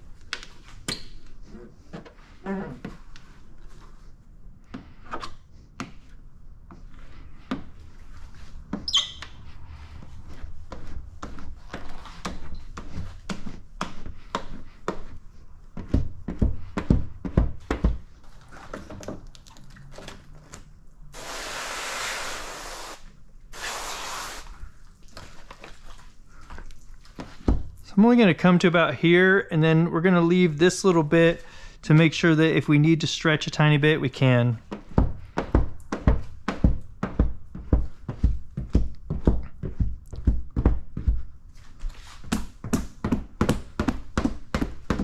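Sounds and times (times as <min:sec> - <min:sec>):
squeegee squeaking on film: 0:08.9 - 0:09.4
liquid spraying hiss: 0:21.2 - 0:24.5.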